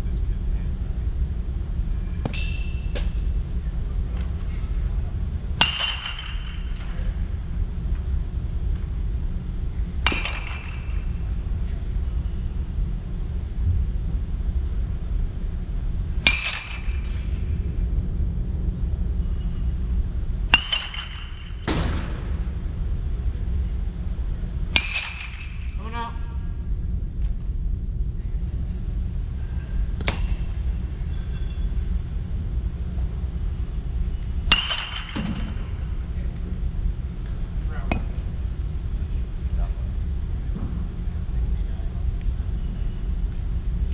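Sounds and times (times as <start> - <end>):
low rumble: 0.0 - 43.9
metal bat hitting baseball: 2.2 - 3.2, 5.6 - 7.1, 10.0 - 11.2, 16.2 - 17.3, 20.5 - 22.4, 24.7 - 25.8, 30.0 - 30.5, 34.5 - 35.7.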